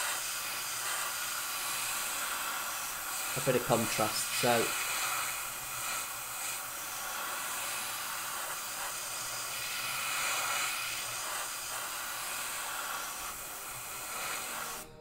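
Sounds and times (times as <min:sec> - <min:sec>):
airbrush hissing compressed air: 0:00.0 - 0:15.0.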